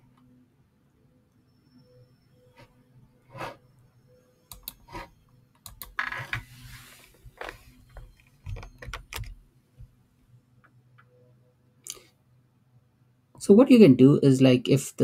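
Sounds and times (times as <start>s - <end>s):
faint steady hum: 0.0s - 15.0s
keyboard and mouse clicks: 4.5s - 6.4s, 7.4s - 9.4s.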